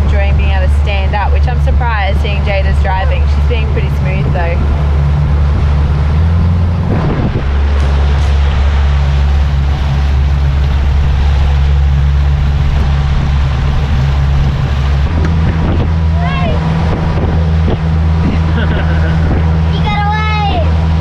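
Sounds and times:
boat motor humming: 0.0 - 21.0
rushing water: 0.0 - 21.0
wind buffeting microphone: 0.0 - 21.0.

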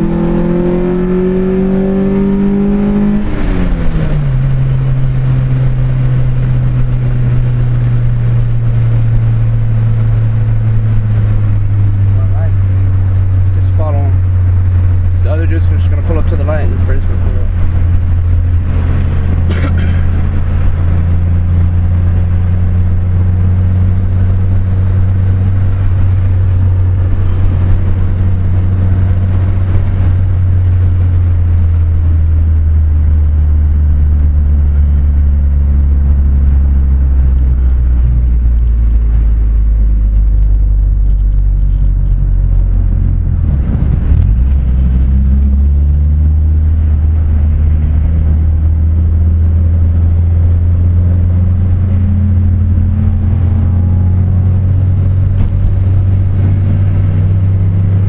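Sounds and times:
car engine and road drone: 0.0 - 58.0.

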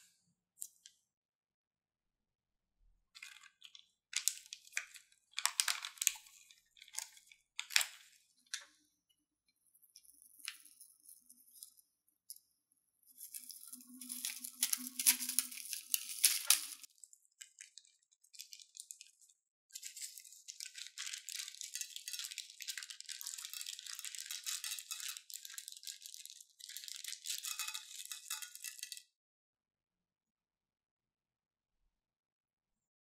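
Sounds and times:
beads pattering onto a dish: 13.1 - 29.1
plastic beads rattling in a bag: 13.1 - 29.1.

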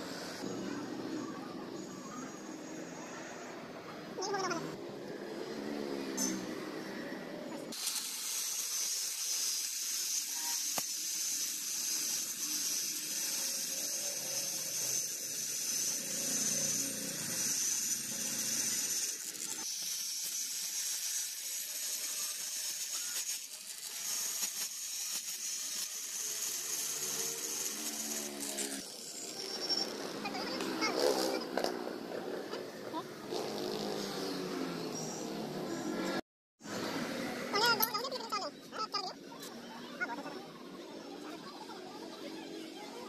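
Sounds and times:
angle grinder cutting wire mesh: 5.4 - 7.0, 7.7 - 38.4.

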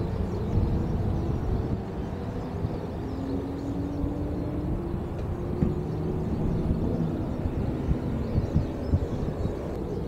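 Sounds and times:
distant jet engines rumbling: 0.0 - 10.0
dull low thumps: 5.1 - 9.5.

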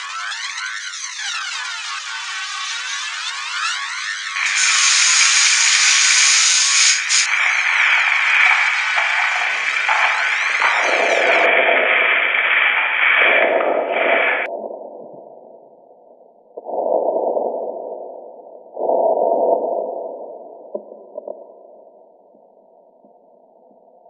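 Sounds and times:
electronic noise hiss: 0.0 - 14.5
muffled noise bursts: 4.3 - 22.0.

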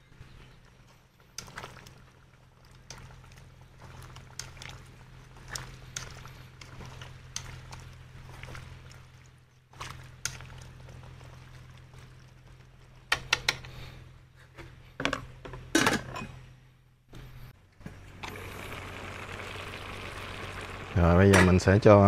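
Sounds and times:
stew simmering with hiss: 0.6 - 14.0, 18.2 - 21.8.

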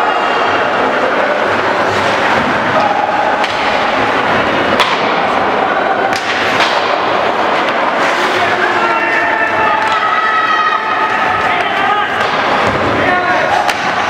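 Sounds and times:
sticks hitting puck: 2.8 - 5.4, 6.1 - 10.1, 11.1 - 14.0.

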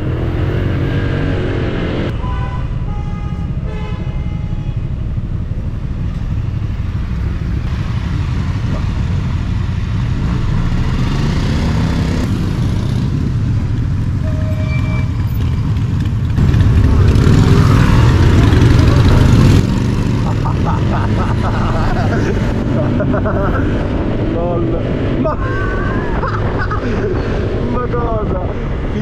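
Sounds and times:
scooter engine and road noise: 0.0 - 29.0
short horn beeps: 14.2 - 15.3.

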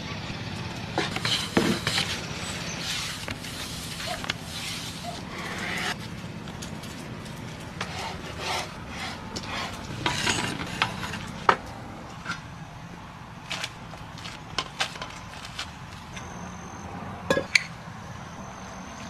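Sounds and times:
knife scraping dough on board: 7.8 - 11.2.

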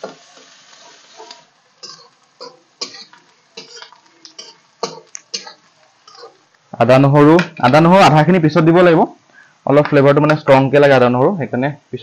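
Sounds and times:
onions sizzling in oil: 0.0 - 6.7.

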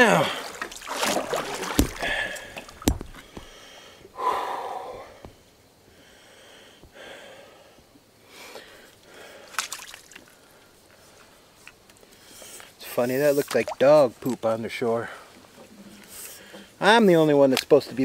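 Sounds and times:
water swishing: 0.0 - 3.7
paddle knocking on hull: 0.9 - 3.5.

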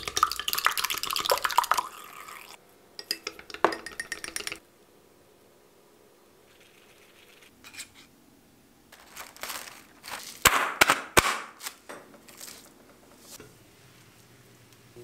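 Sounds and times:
plastic wrap crinkling: 8.9 - 10.7, 11.5 - 13.4
plastic wrap popping: 9.0 - 12.7.

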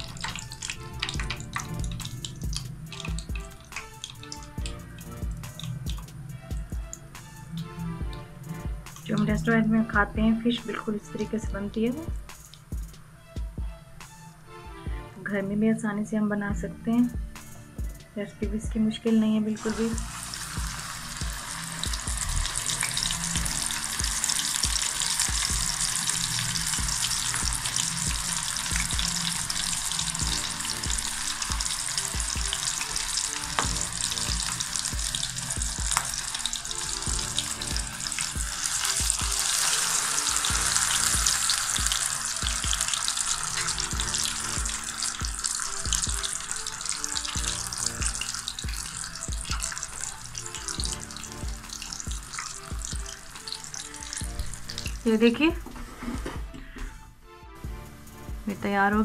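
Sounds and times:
fish deep-frying in hot oil: 0.0 - 6.9, 8.9 - 9.5, 19.6 - 55.4.

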